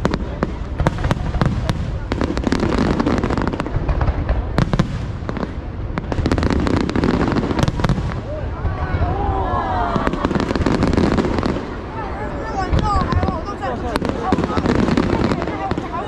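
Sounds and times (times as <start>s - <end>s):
fireworks bangs and crackles: 0.0s - 16.0s.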